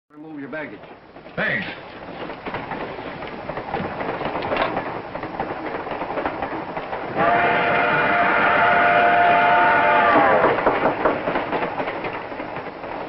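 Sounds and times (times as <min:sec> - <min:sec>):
train wheels clattering: 0:00.1 - 0:13.0
train whistle: 0:07.1 - 0:10.7.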